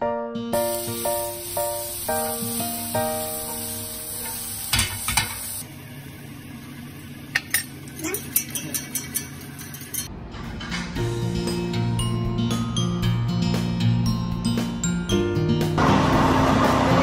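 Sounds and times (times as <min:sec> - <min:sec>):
background music: 0:00.0 - 0:04.7, 0:10.1 - 0:17.0
utensils clinking on cookware: 0:03.4 - 0:05.6, 0:07.3 - 0:10.1.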